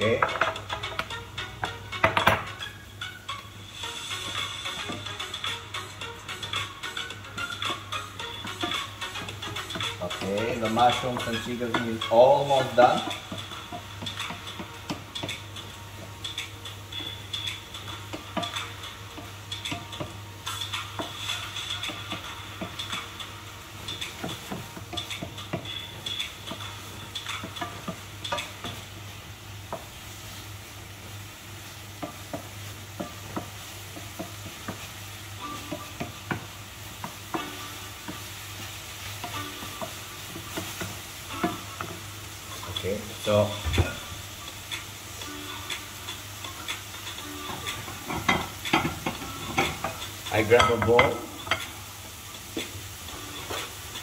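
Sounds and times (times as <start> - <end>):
food sizzling in a frying pan: 0.0 - 54.0
wooden spoon scraping a pan: 7.4 - 15.4.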